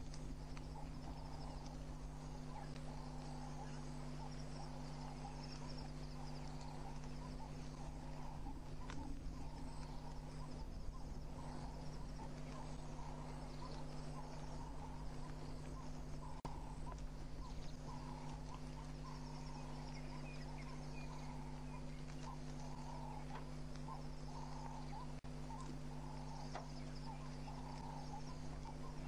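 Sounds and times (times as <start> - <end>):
low electrical hum: 0.0 - 29.0
small animal calls: 0.0 - 29.0.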